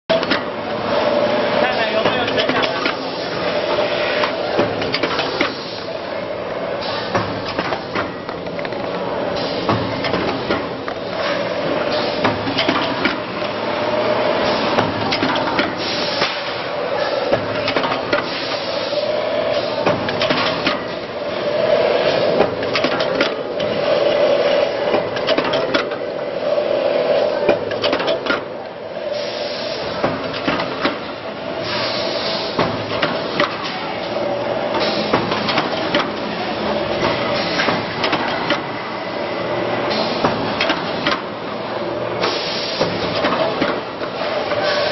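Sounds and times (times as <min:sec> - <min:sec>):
machine humming: 0:00.1 - 0:44.9
machine clacks and knocks: 0:02.0 - 0:03.0, 0:12.2 - 0:13.3, 0:17.3 - 0:18.3, 0:19.8 - 0:20.9, 0:22.4 - 0:23.8, 0:24.9 - 0:26.0, 0:27.5 - 0:28.5, 0:30.0 - 0:31.1, 0:40.2 - 0:41.3, 0:42.8 - 0:43.9.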